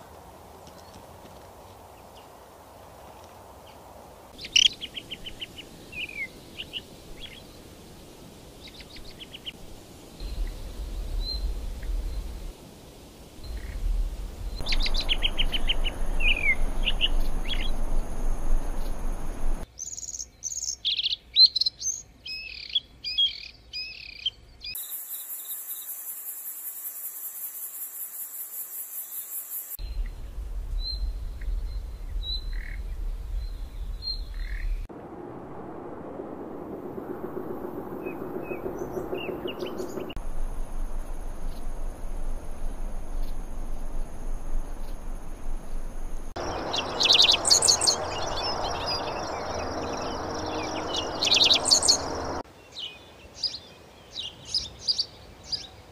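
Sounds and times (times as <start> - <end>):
songbirds chirping and trilling: 3.1 - 8.0, 13.4 - 24.8, 42.8 - 55.9
high rapid pulsing buzz: 35.0 - 52.4.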